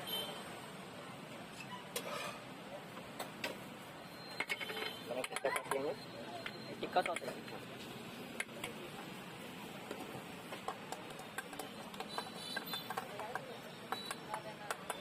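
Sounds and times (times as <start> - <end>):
voices: 4.2 - 15.0.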